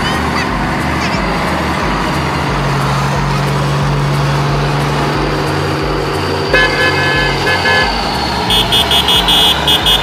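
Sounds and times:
truck engine running: 0.0s - 10.0s
horn toot: 6.5s - 10.0s.

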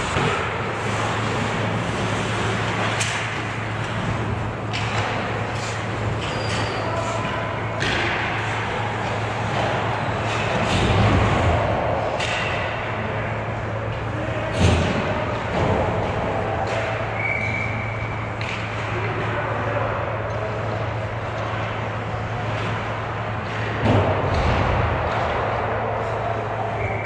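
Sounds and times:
hockey sticks and puck knocking: 0.0s - 12.9s.

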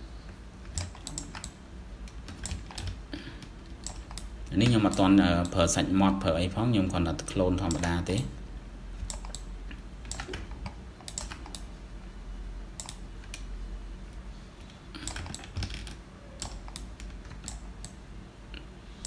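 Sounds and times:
low steady hum: 0.0s - 19.0s
mouse clicks: 9.0s - 9.5s
keyboard keystrokes: 9.0s - 11.6s.

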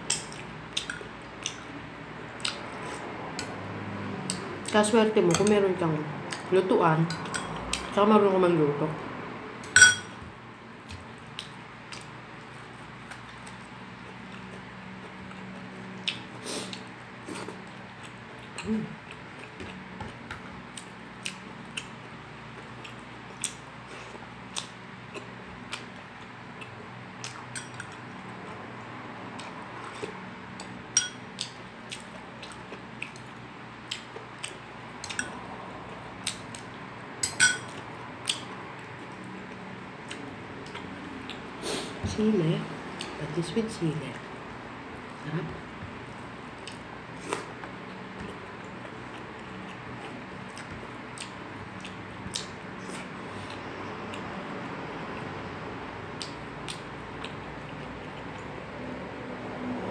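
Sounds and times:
chewing clicks and smacks: 0.1s - 1.8s, 2.4s - 2.8s, 10.8s - 12.2s, 17.9s - 23.6s, 24.5s - 28.1s, 29.3s - 35.4s, 36.2s - 36.8s, 37.7s - 41.4s, 46.6s - 55.3s, 56.1s - 58.6s
spoon clinking against dish: 9.7s - 10.2s, 31.0s - 31.2s, 37.2s - 37.7s.

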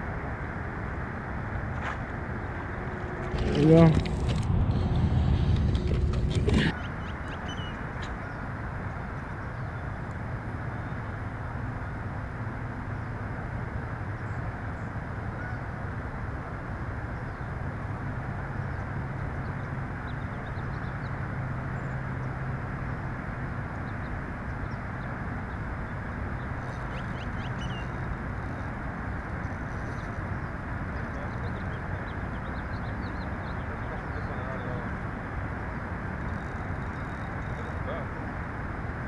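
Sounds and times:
outdoor background rumble: 0.0s - 39.0s.

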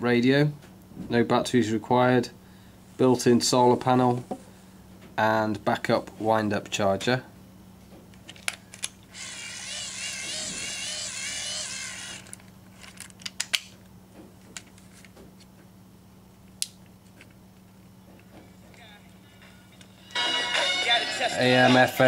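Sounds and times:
hand-crank dynamo whirring: 9.1s - 12.4s.

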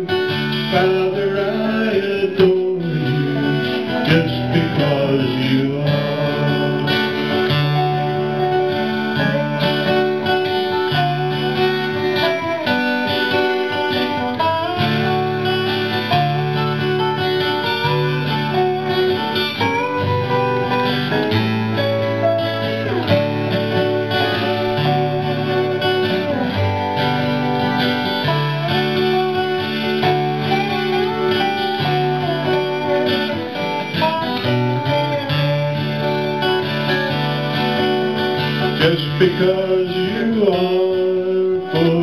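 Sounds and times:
sliding resonator guitar notes: 0.0s - 42.0s
strummed acoustic guitars: 0.0s - 42.0s.

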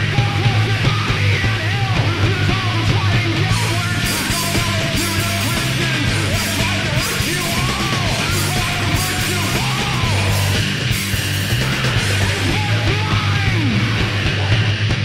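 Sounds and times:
noise rock band playing: 0.0s - 15.0s
steady drumming: 0.0s - 15.0s.

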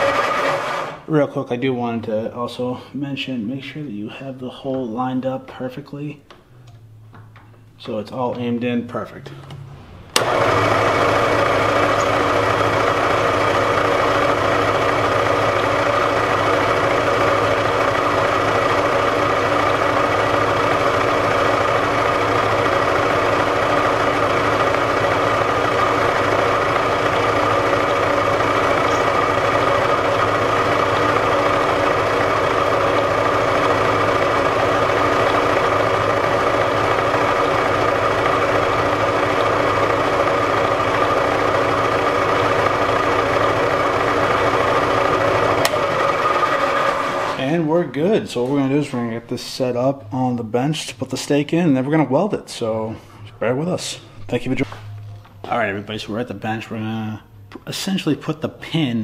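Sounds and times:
milling machine whine: 0.0s - 1.1s, 9.5s - 47.7s.

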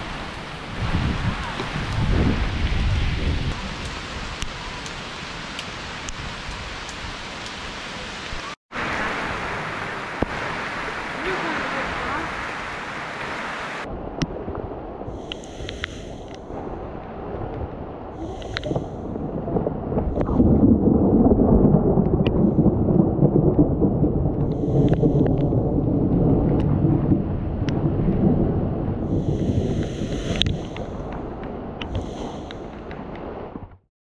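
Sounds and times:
thunder rolling: 0.0s - 4.8s, 18.7s - 31.8s
rain hissing: 0.0s - 13.9s, 15.1s - 17.2s, 18.1s - 21.6s, 24.3s - 25.8s, 29.0s - 33.4s.

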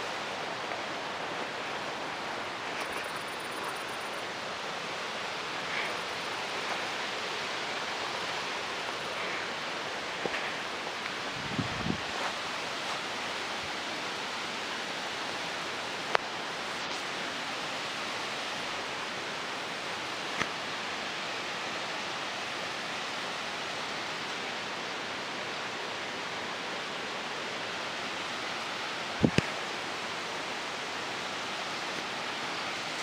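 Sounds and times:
mountain stream rushing: 0.0s - 33.0s.

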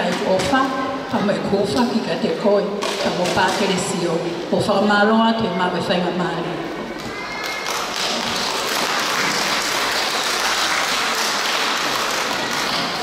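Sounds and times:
audience applauding: 7.5s - 13.0s.

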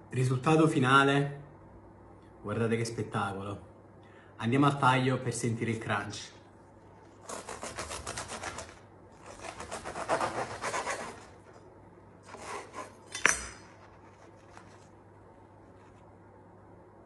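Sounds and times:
knife cutting crisp bread crust: 7.1s - 11.6s, 12.2s - 15.0s.

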